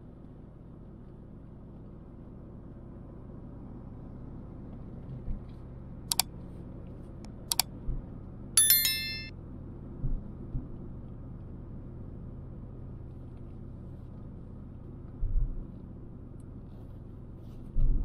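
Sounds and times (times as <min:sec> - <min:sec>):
bell chime: 0:08.6 - 0:09.3.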